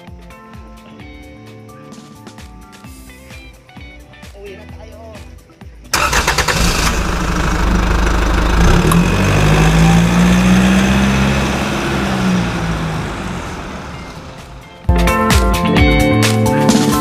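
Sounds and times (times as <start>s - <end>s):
motorcycle engine running: 6.8s - 14.9s.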